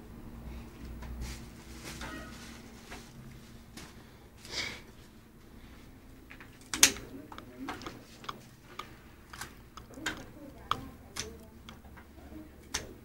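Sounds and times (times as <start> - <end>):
flowers rustling on wrapping: 0.6 - 12.0.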